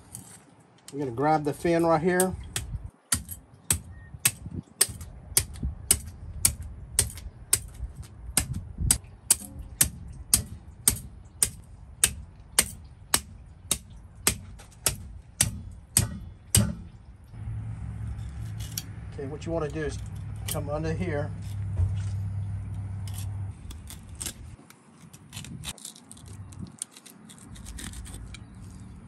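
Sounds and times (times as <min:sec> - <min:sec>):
blade striking wooden board: 0:02.6 - 0:17.0.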